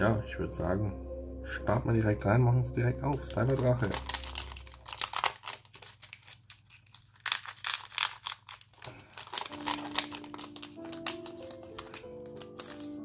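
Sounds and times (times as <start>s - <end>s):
foil wrapper crinkling and tearing: 3.1s - 13.0s.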